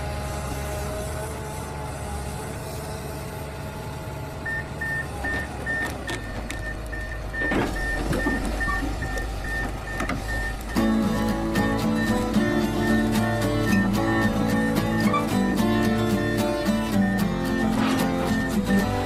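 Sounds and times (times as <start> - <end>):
excavator diesel engine running: 0.0 - 19.0
travel alarm beeping: 4.5 - 19.0.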